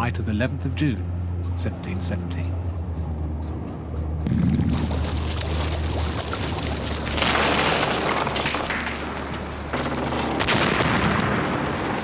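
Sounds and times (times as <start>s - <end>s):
steady low drone: 0.0s - 7.3s.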